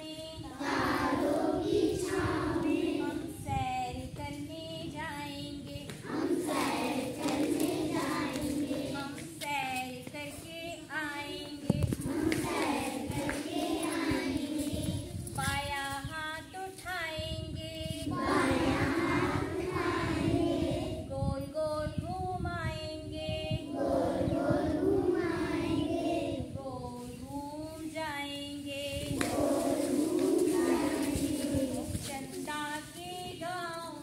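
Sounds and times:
children singing in a group: 0.4 - 3.4, 6.0 - 9.4, 11.5 - 15.1, 18.0 - 21.1, 23.4 - 26.6, 28.7 - 32.4.

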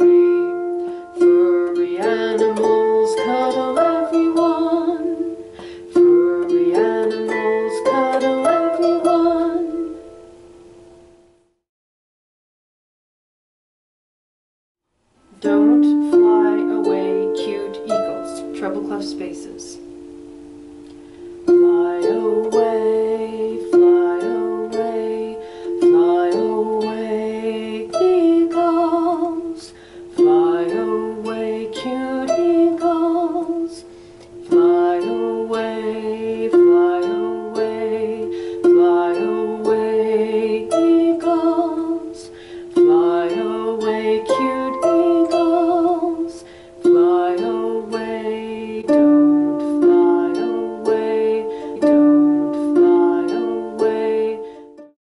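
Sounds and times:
held wavering tone: 0.0 - 11.4, 15.3 - 54.9
harp plucked phrase: 15.3 - 54.9.

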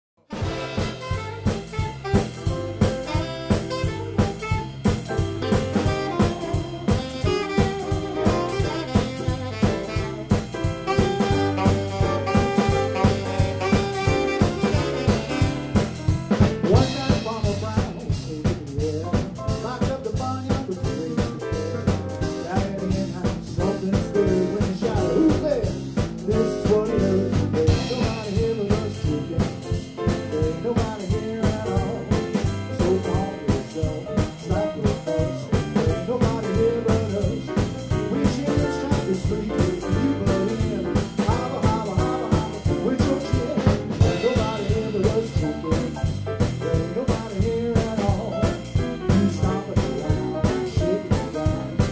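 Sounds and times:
bass: 0.1 - 51.9
saxophone: 0.2 - 17.2, 24.1 - 25.7
drums swing beat: 0.2 - 51.9
piano: 0.2 - 51.9.

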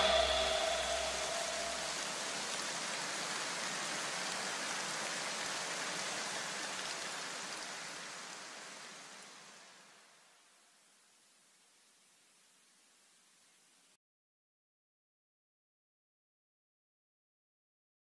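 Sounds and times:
music: 0.0 - 2.0
steady hiss: 0.0 - 14.0.

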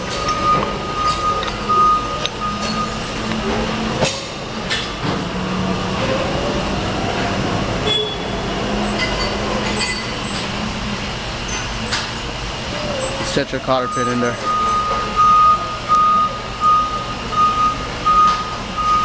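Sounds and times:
steady workshop hum: 0.0 - 19.0.

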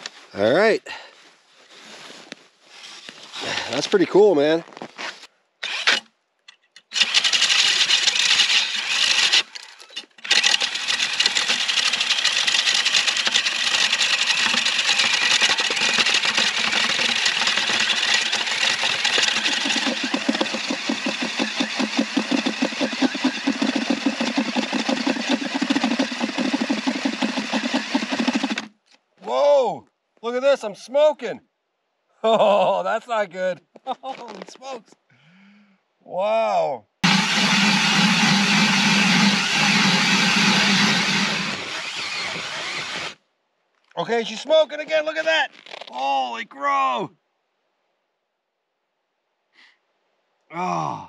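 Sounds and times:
cordless drill grinding ice: 5.6 - 6.0, 6.9 - 28.7, 37.0 - 43.2.

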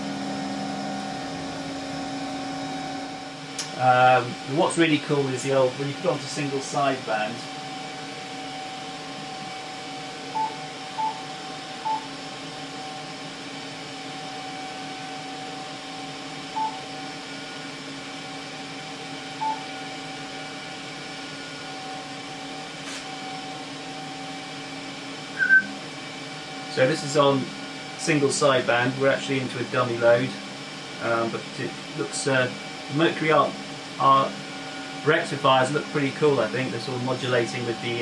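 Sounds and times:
amplifier whirring hum: 0.0 - 38.0
short electronic beeps: 16.6 - 16.9, 19.4 - 19.7, 25.4 - 25.7
higher electronic blip: 25.4 - 25.7.

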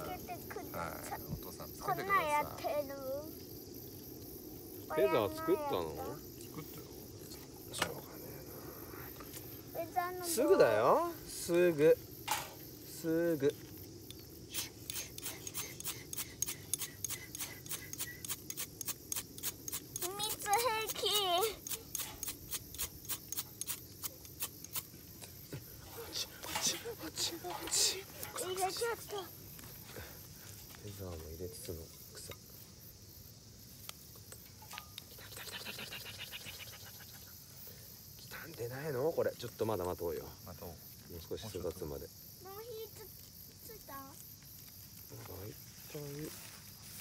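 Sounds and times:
insects droning: 0.0 - 47.0
fire steel scraped with striker: 14.6 - 21.0, 21.6 - 24.9.

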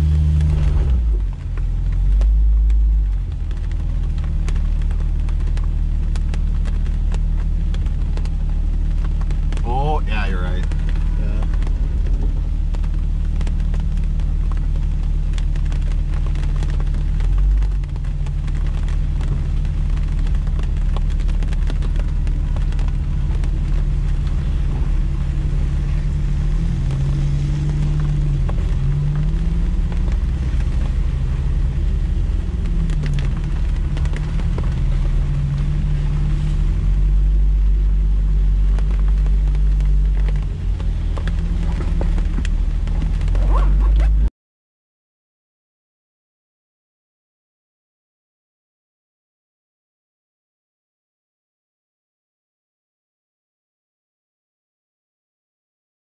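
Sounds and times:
engine rumbling and revving: 0.0 - 44.3.

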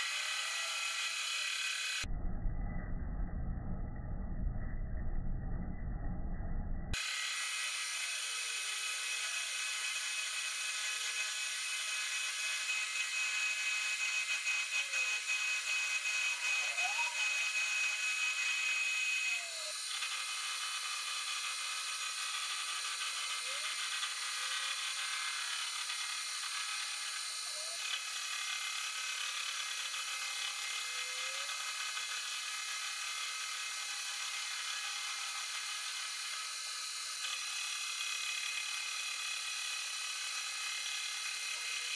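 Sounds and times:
metal lathe whine and cutting hiss: 7.0 - 41.9
sliding pitch squeaks: 16.2 - 17.7.

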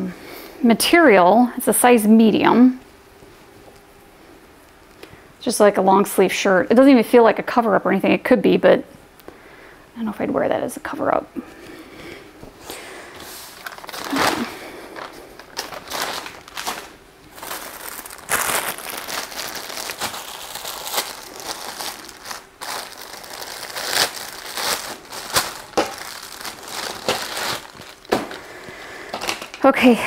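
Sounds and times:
packaging crinkling: 12.7 - 29.6.

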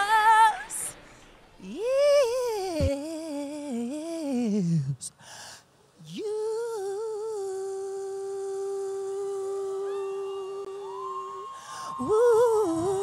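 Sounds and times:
woman singing: 0.0 - 1.0, 1.6 - 5.1, 6.0 - 13.0
breath: 5.2 - 5.8, 11.6 - 12.0.

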